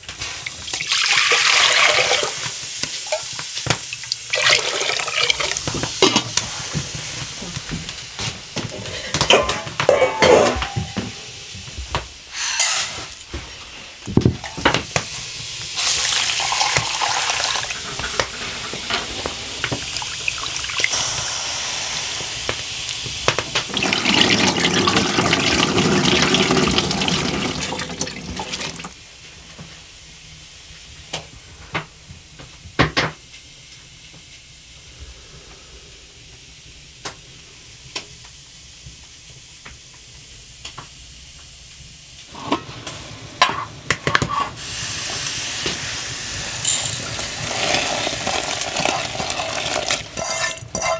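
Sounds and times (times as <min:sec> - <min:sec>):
water running and splashing: 0:00.4 - 0:06.8, 0:14.4 - 0:21.3, 0:22.0 - 0:29.0, 0:45.1 - 0:50.9
dishes and utensils clattering: 0:08.8 - 0:11.4, 0:46.6 - 0:47.8, 0:50.1 - 0:50.9.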